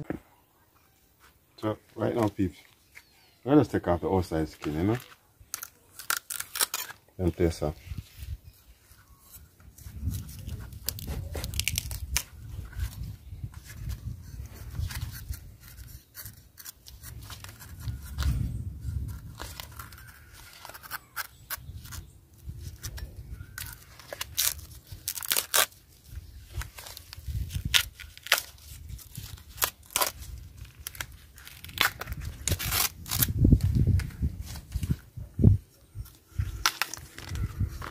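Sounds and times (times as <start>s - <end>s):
husk cracking and tearing: 4.2s - 7.7s, 9.0s - 35.0s, 35.9s - 37.9s
knife cutting bamboo husk: 9.0s - 13.0s, 13.6s - 18.4s, 19.0s - 25.8s, 26.5s - 33.3s.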